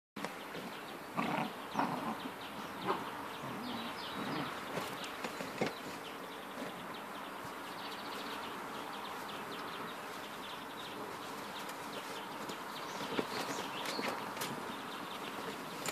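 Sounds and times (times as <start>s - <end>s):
puppies yipping and grunting: 1.0s - 5.7s.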